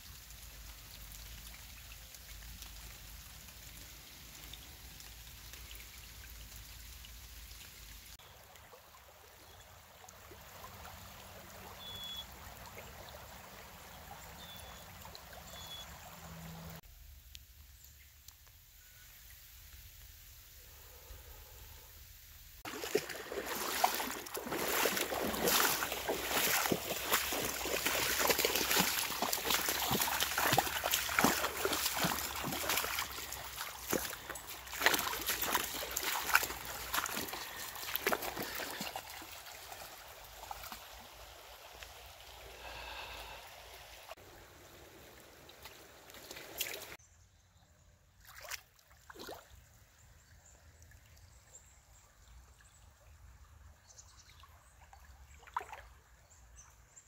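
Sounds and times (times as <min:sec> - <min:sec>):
water splashing and trickling: 0:00.0 - 0:47.0, 0:48.0 - 0:57.0.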